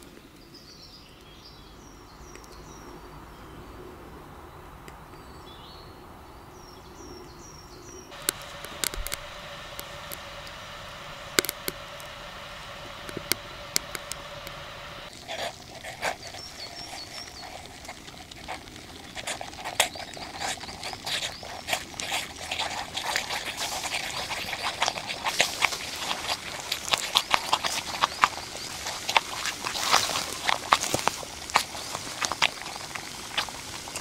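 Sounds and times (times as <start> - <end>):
boiling kettle rattling and spitting: 8.1 - 34.0
fire crackling in chimney: 8.1 - 34.0
steam escaping from spout: 8.1 - 34.0.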